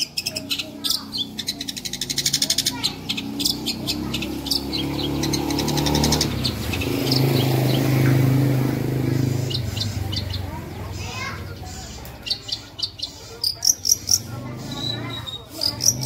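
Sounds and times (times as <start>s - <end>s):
low engine hum: 3.0s - 11.0s.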